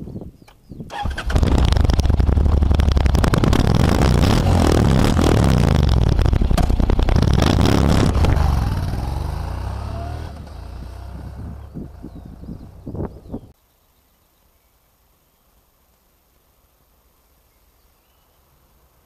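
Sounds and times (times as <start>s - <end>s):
motorcycle engine pulling away: 0.9s - 13.5s.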